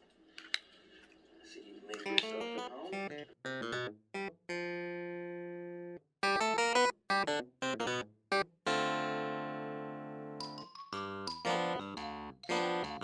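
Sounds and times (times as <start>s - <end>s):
instrumental background music: 8.7s - 13.0s.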